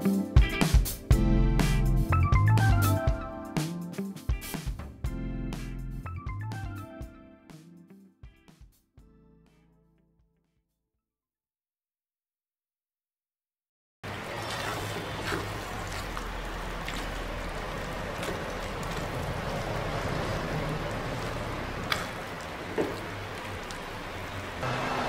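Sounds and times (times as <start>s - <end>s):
rice simmering: 14.0s - 25.0s.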